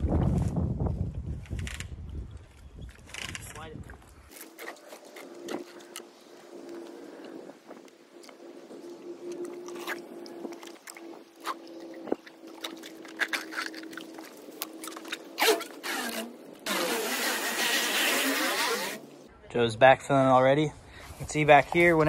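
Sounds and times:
loud scrape: 15.4 - 19.0.

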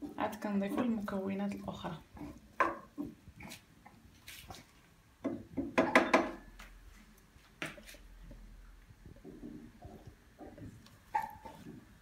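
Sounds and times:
wooden spoon scraping a pot: 0.0 - 4.8, 9.1 - 12.0.

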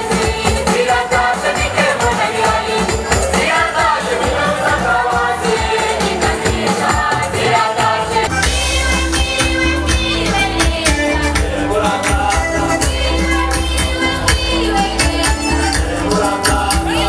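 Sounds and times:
drums: 0.0 - 17.0
group of voices singing: 0.0 - 17.0
steady bass: 0.0 - 17.0.

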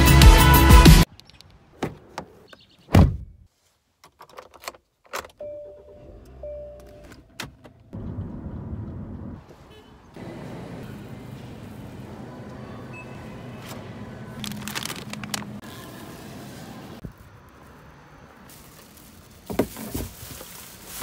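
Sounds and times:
car door thudding shut: 2.9 - 3.3.

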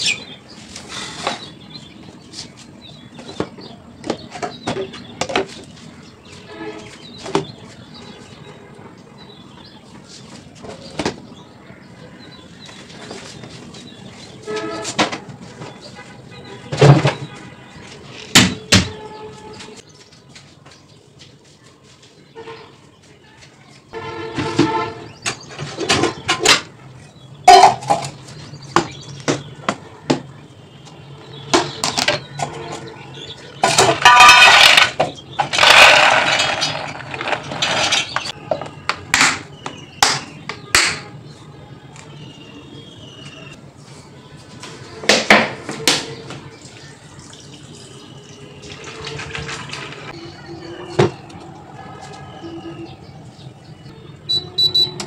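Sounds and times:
objects knocking and clattering: 3.2 - 5.7, 16.7 - 17.4, 24.3 - 26.8, 27.4 - 30.3, 31.5 - 32.9, 33.6 - 41.0, 48.7 - 50.2.

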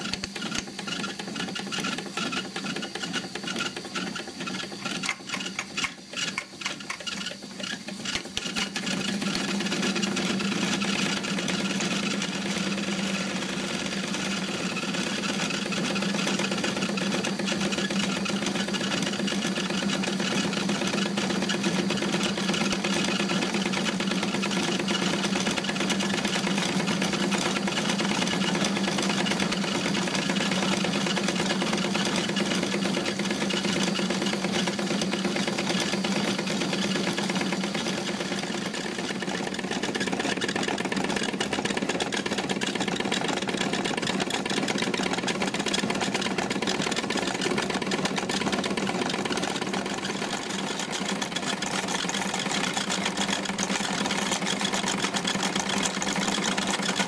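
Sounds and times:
steady mechanical hum: 0.0 - 57.0
toy steam engine clatter: 0.0 - 57.0.

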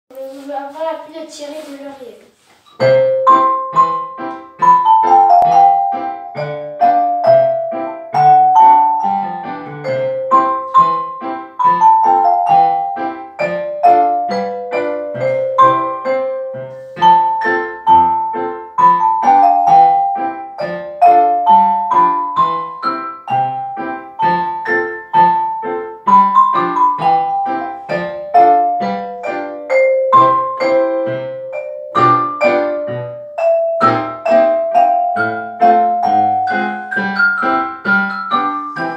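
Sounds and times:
piano accompaniment: 0.1 - 38.9
xylophone melody: 2.8 - 38.9.

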